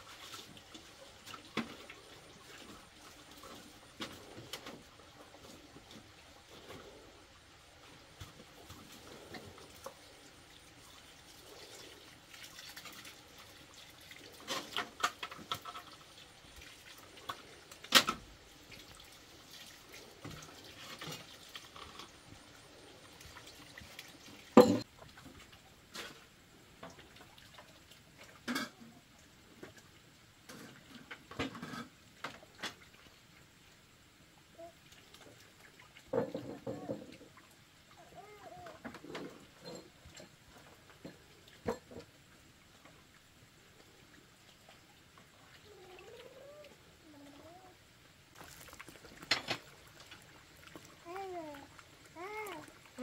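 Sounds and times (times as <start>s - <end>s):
hose water splashing on sand: 48.3s - 53.0s.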